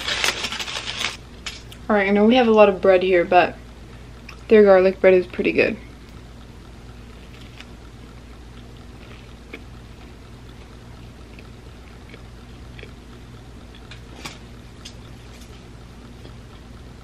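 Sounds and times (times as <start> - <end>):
steady low hum: 0.0 - 17.0
chewing crunches: 6.9 - 16.8.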